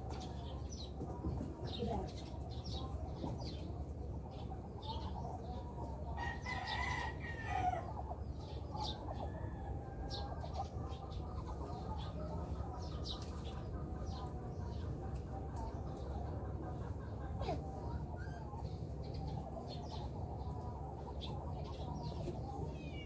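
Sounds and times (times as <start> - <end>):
rooster crowing: 6.2 - 7.9.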